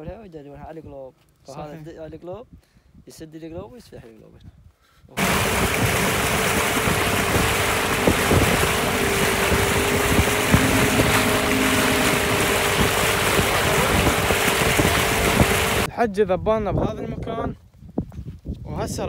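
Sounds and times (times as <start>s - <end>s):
wind noise on microphone: 1.8s - 19.0s
outboard motor running: 5.2s - 15.9s
water rushing past hull: 5.2s - 15.9s.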